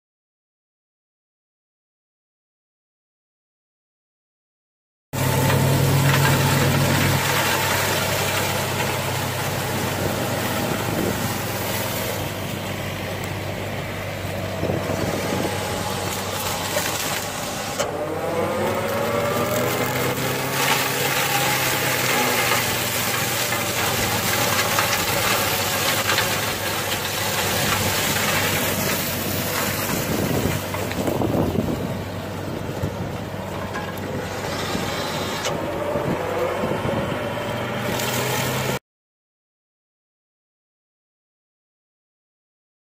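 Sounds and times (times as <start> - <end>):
diesel engine under load: 5.2 - 38.8
mulcher head cutting grass: 5.2 - 38.8.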